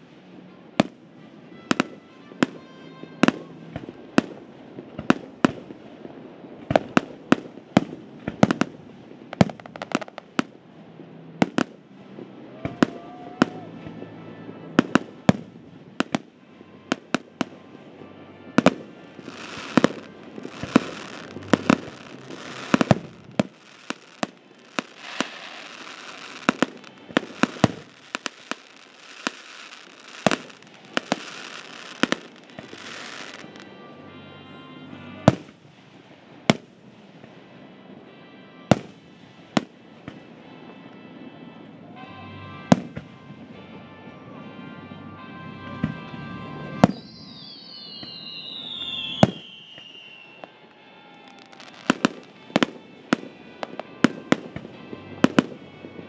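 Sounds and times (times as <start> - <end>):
firework shells bursting: 19.3 - 33.6.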